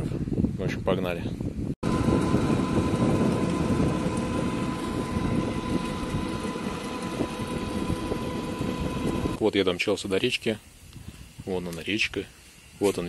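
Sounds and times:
wind rushing over microphone: 0.0s - 9.6s, 10.2s - 13.0s
high electric motor whine: 1.8s - 9.4s.

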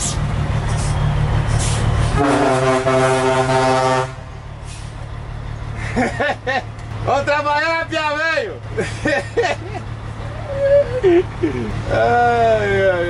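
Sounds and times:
truck engine running: 0.0s - 13.0s
truck horn blast: 1.6s - 4.8s.

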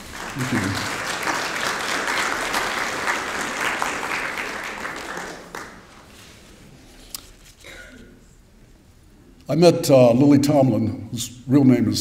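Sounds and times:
lone clap: 0.0s - 5.9s
audience applauding: 0.0s - 6.1s.

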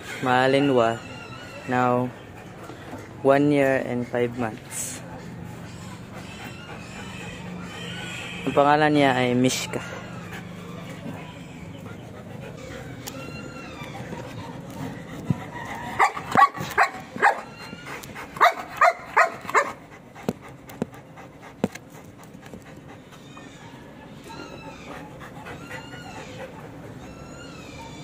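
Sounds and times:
dog barking: 16.0s - 17.5s, 18.4s - 19.8s.

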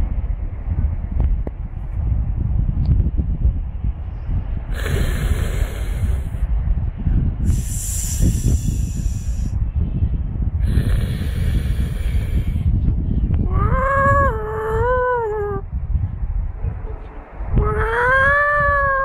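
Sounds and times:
cat hissing: 4.7s - 6.4s, 7.5s - 9.5s, 10.6s - 12.6s.

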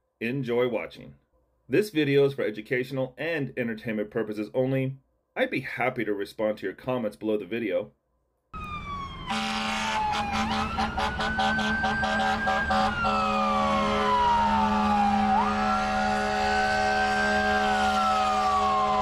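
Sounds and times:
ambulance siren wailing: 8.6s - 19.0s
low horn tone pulsing: 9.2s - 19.0s.

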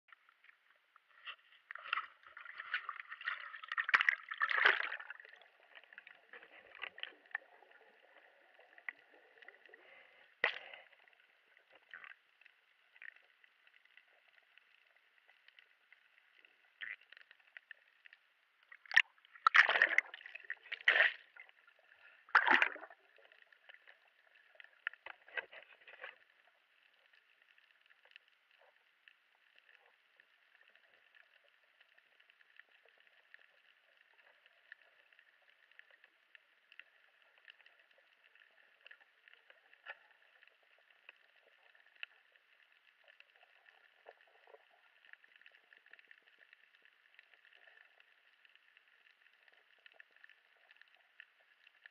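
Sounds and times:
small clicks underwater: 0.1s - 51.9s
water splashing: 1.1s - 11.0s, 18.6s - 26.4s.

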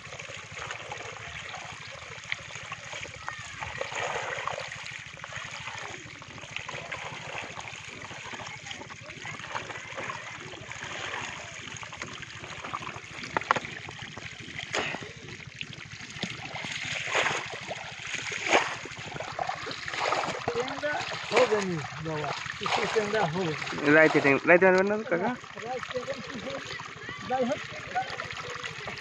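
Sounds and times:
water running through channel: 0.0s - 29.0s
fish flapping and splashing: 0.3s - 29.0s.

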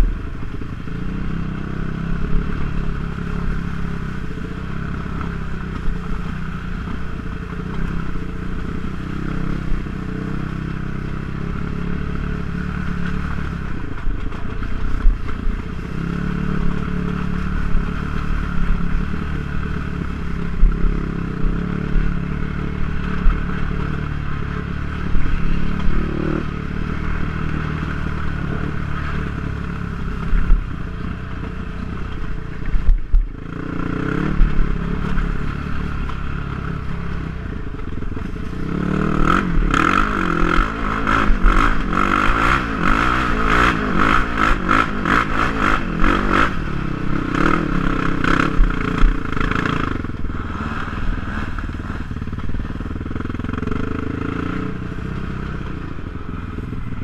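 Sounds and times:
quad bike engine running: 0.0s - 57.0s.

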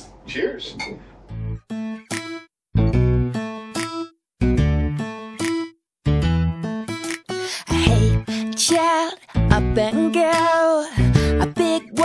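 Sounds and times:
strummed guitar chords: 1.3s - 10.2s.

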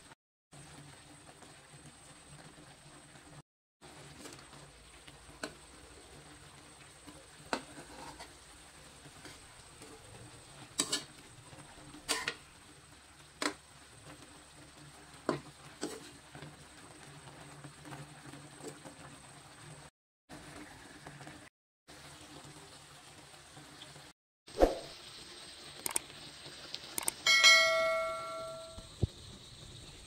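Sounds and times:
sauce simmering: 0.6s - 24.1s, 24.8s - 27.0s, 28.7s - 30.0s
metal spoon clinking on wok: 27.3s - 28.8s.

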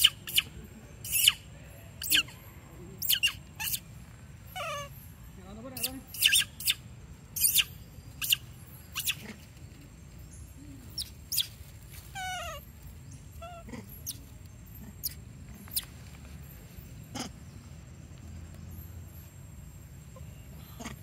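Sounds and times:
monkey squeaking: 0.0s - 9.5s, 10.9s - 12.7s, 13.3s - 16.0s
monkey whimpering: 2.0s - 3.9s, 4.5s - 5.0s, 12.1s - 12.7s, 13.4s - 15.8s, 17.1s - 17.4s, 20.7s - 21.0s.

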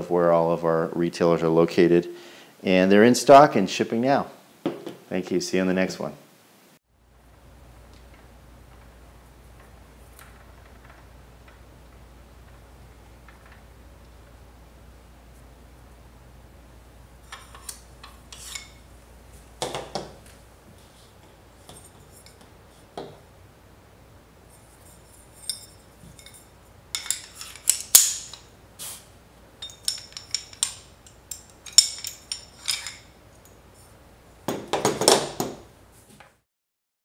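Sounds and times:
metal plates clinking and scraping: 17.3s - 18.9s, 24.6s - 28.5s, 29.6s - 33.2s.

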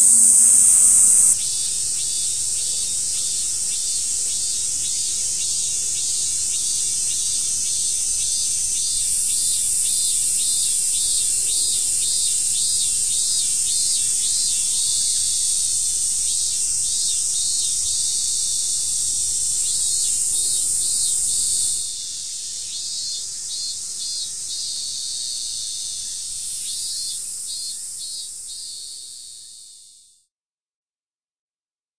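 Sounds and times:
rhythmic pulsing call: 0.0s - 1.4s
cicadas shrilling: 0.0s - 22.0s.

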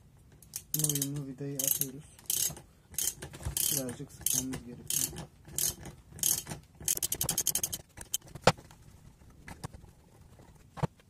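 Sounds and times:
ratchet wrench clicking: 0.5s - 8.2s.

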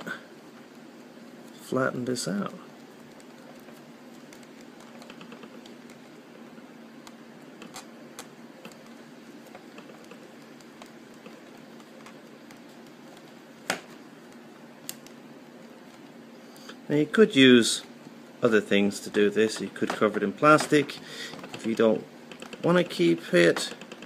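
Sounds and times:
air conditioner hum: 0.0s - 24.0s.

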